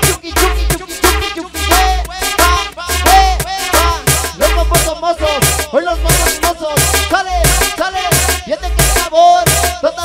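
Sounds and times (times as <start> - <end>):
cumbia music over sound system: 0.0 - 10.0.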